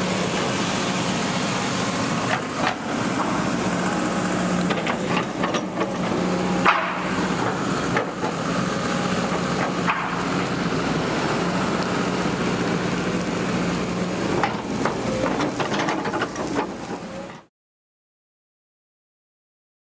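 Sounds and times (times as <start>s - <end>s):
excavator engine humming: 0.0s - 17.5s
metallic clanks and knocks: 4.7s - 8.4s, 14.4s - 16.8s.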